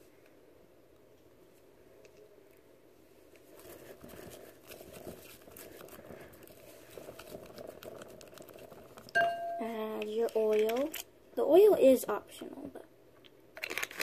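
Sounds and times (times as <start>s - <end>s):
spatula stirring foamy glue: 3.6s - 9.1s.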